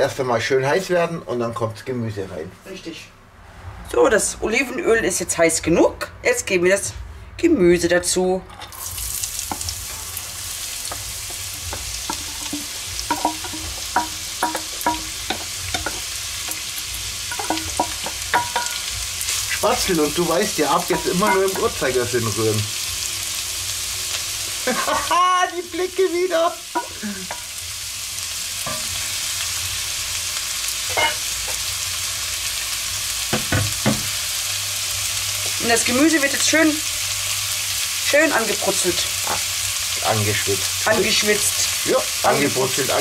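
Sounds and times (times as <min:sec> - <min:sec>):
vegetables sizzling in oil: 0:08.6 - 0:43.0
wooden spoon knocking on metal bowl: 0:10.9 - 0:16.6, 0:17.3 - 0:18.8, 0:33.3 - 0:34.1.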